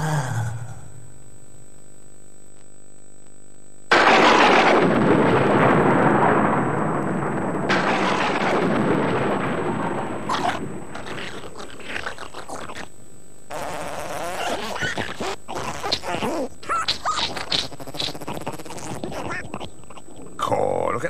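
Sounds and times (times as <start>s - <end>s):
low electrical hum: 0.0s - 21.0s
loud rumbling crash: 3.9s - 12.4s.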